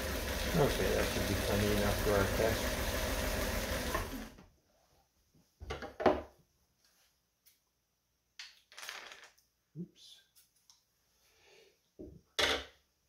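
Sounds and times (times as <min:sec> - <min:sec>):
sewing machine motor running: 0:00.0 - 0:04.4.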